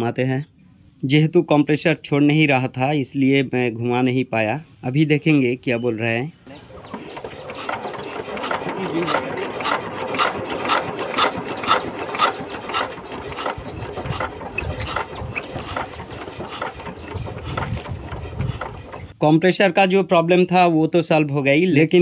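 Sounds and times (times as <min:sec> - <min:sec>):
diesel engine hand-cranked clacking: 0:06.5 - 0:19.2.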